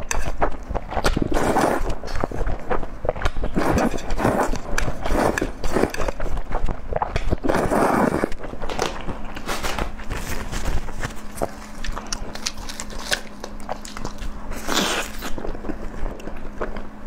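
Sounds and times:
wet chewing: 0.0 - 17.0
slurping noodles: 0.2 - 8.4, 13.8 - 16.0.

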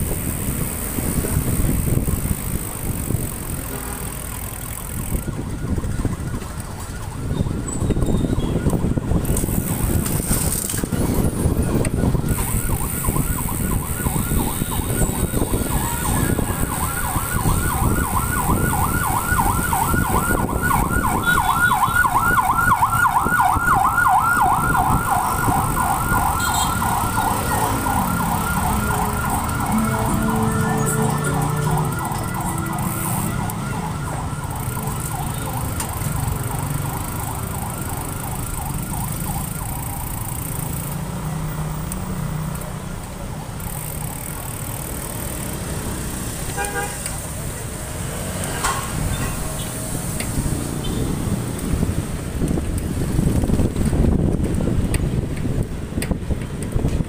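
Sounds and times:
motorcycle engine and road noise: 0.0 - 57.0
emergency siren yelping: 4.5 - 10.0, 11.3 - 40.7.

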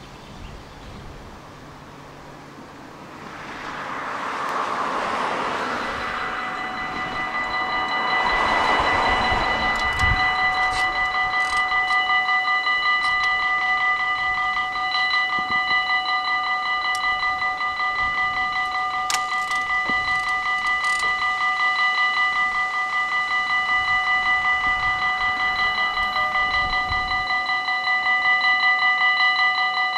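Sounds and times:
car driving past: 1.9 - 10.4
level crossing bell ringing: 4.9 - 29.9.

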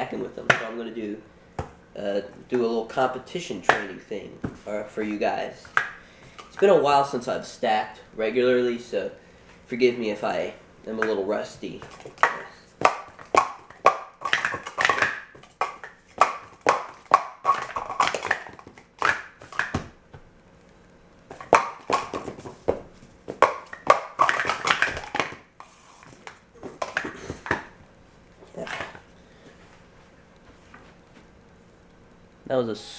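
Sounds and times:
plastic cups clattering: 11.0 - 19.9, 21.3 - 27.8, 28.4 - 29.1.

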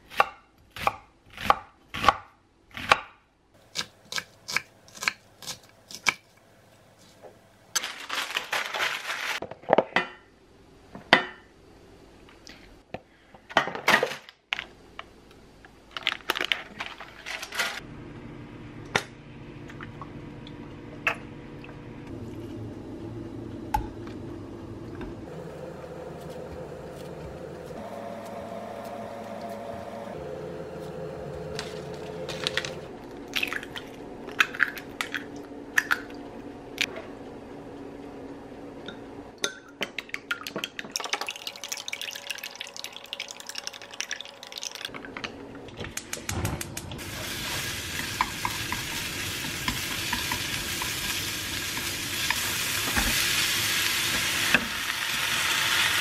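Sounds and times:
steady hum with held tones: 17.8 - 39.6.

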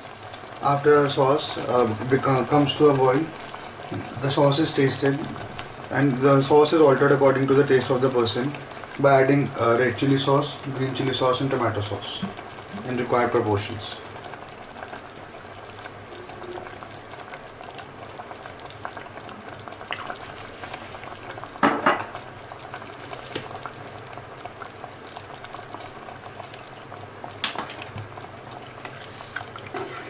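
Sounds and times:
thick sauce bubbling: 0.0 - 30.0.

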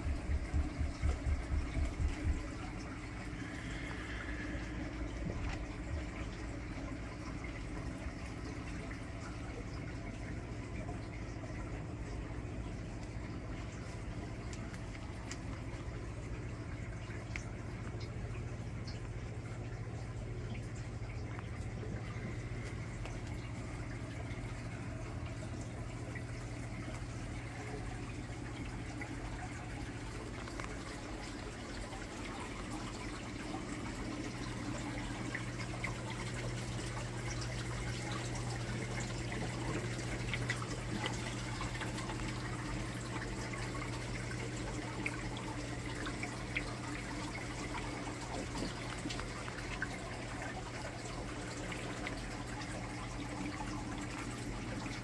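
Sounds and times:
low hum: 0.0 - 43.4
aquarium water trickling: 0.0 - 55.0
small drips and pops: 0.0 - 55.0.

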